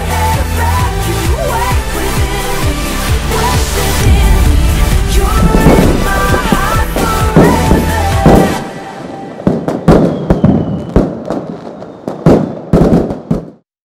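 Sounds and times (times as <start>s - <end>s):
music: 0.0s - 9.8s
fireworks bangs and crackles: 3.1s - 13.7s
firework whistle: 5.2s - 12.9s.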